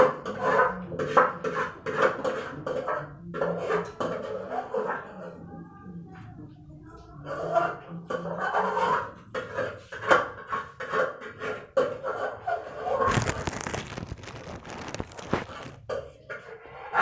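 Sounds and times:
rustling: 13.0s - 15.8s.

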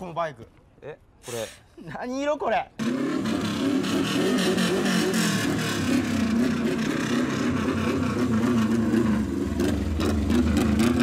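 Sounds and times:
motorcycle engine revving: 2.8s - 11.0s.

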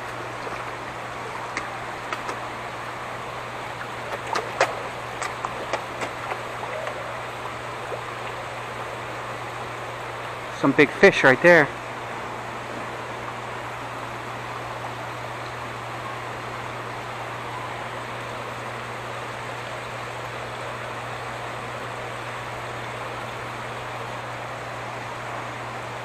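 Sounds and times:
water splashing into a pond: 0.0s - 11.1s
constant low hum: 0.0s - 26.0s.

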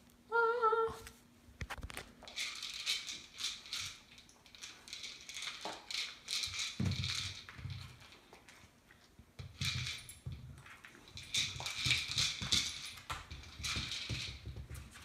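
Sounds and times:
kibble rattling inside toy: 2.2s - 8.3s, 9.4s - 15.0s
plastic toy knocking and rolling: 11.2s - 15.0s.

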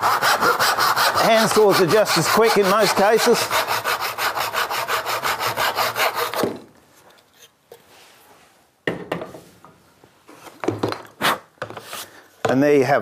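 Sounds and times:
hand saw cutting wood: 0.0s - 6.6s.

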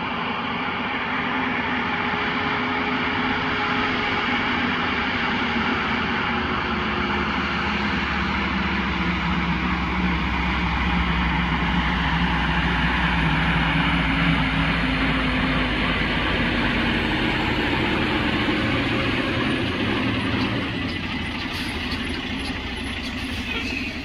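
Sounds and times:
truck diesel engine drone: 0.0s - 24.0s
tyre and road noise: 4.4s - 24.0s.

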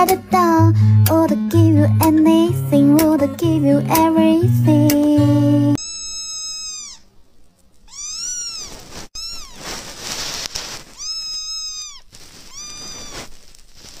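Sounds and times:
kitten meowing: 5.8s - 7.1s, 7.9s - 9.8s, 10.9s - 13.3s.

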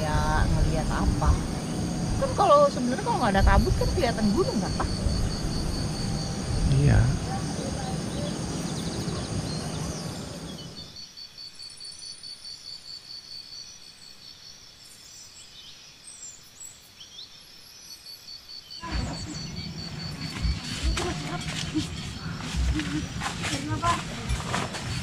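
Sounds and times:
wind rumble on microphone: 0.0s - 10.8s
insect trilling: 0.0s - 14.2s, 17.8s - 25.0s.

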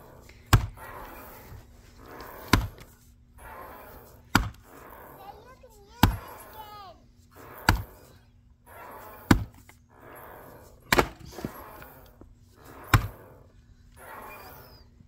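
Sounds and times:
axe chopping wood: 2.5s - 2.8s, 4.3s - 4.6s, 6.0s - 6.3s, 7.6s - 7.9s, 10.9s - 11.3s.

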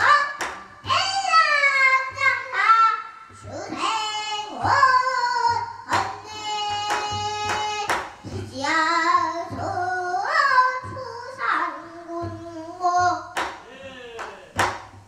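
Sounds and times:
girl singing: 0.0s - 13.5s
sharp knocks: 5.5s - 9.8s, 12.2s - 15.0s.

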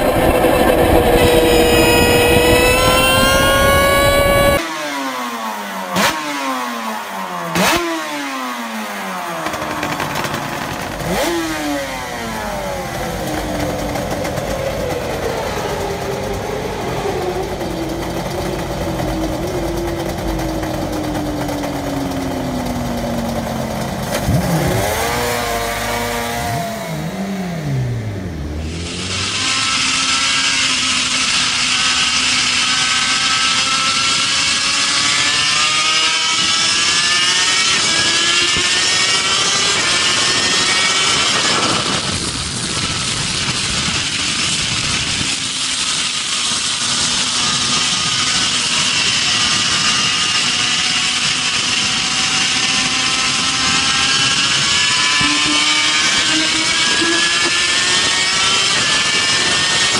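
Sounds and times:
racing motorcycle engine revving: 0.0s - 59.9s.

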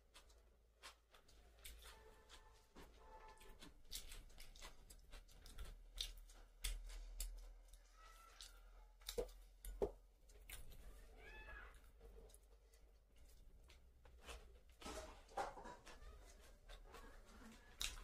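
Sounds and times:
chewing and eating sounds: 0.0s - 18.0s.

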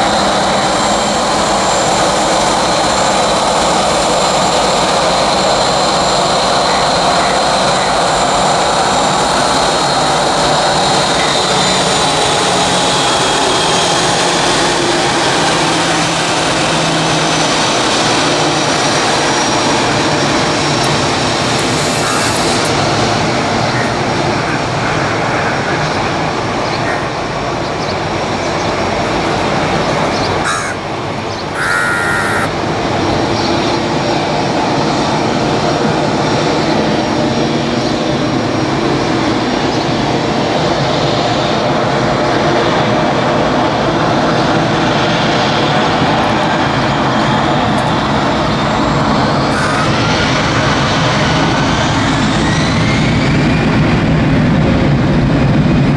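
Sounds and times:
jet engines whining: 0.0s - 55.9s
crows cawing: 21.6s - 22.7s, 23.6s - 24.6s, 26.7s - 27.2s, 30.4s - 30.9s, 31.5s - 32.5s, 49.5s - 50.0s.

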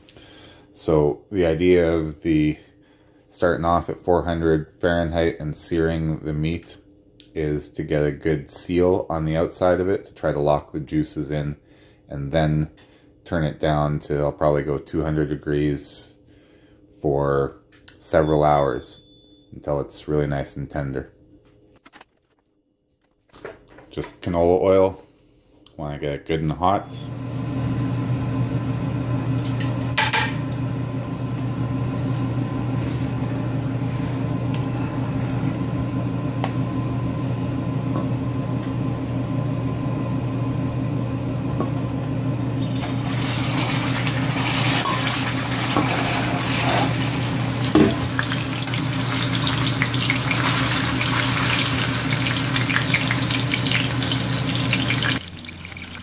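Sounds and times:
steady low hum: 23.6s - 56.0s
meat sizzling in a skillet: 42.6s - 56.0s.

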